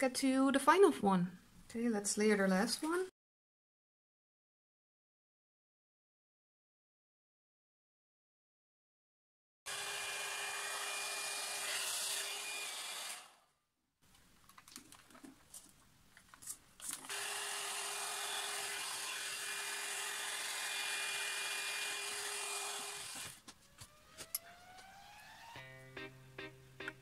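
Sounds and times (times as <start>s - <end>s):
hair dryer running: 9.7s - 13.2s, 17.1s - 23.4s.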